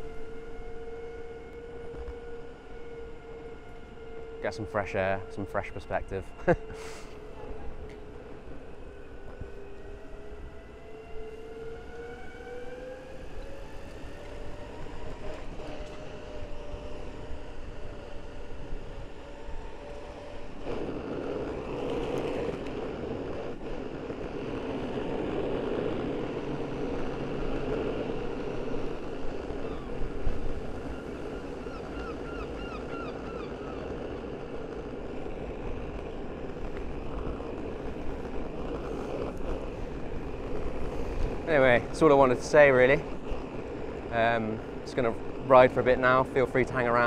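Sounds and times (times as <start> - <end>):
board rolling over pavement: 6.4 - 47.0
wind on microphone: 12.5 - 46.2.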